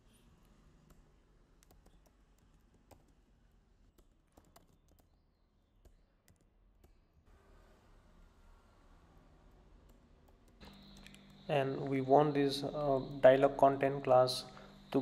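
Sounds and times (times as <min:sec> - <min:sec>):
keyboard typing: 0:00.9 - 0:03.2, 0:03.9 - 0:05.2, 0:09.9 - 0:11.5.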